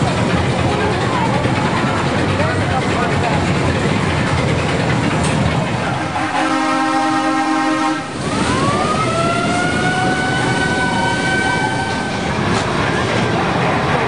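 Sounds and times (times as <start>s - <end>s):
carnival ride rumble: 0.0s - 14.0s
horn-like tone: 6.1s - 8.1s.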